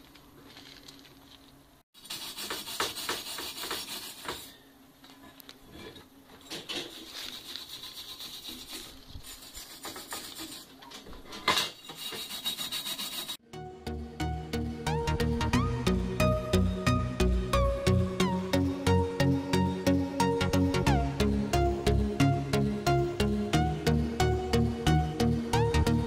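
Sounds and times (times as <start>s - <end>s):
hand tool rasping on metal mesh: 2.0s - 4.6s, 6.5s - 10.8s, 11.8s - 13.4s.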